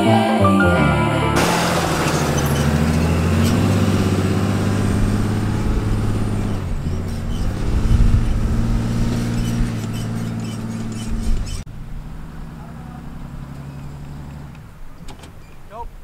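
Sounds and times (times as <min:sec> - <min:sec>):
truck engine under load: 0:01.4 - 0:16.0.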